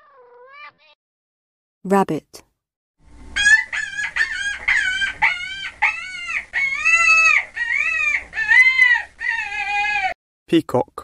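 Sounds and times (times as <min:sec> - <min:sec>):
high-pitched animal calls: 0:03.4 - 0:10.2.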